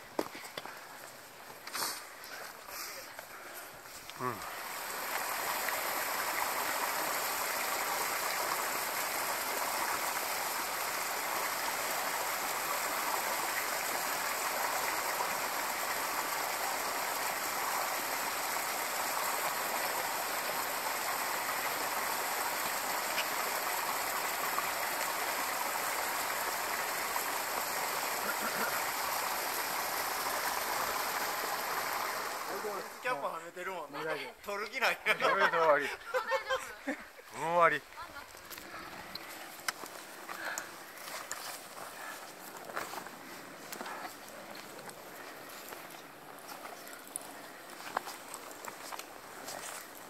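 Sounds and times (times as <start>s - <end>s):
mountain stream rushing: 0.0s - 50.0s.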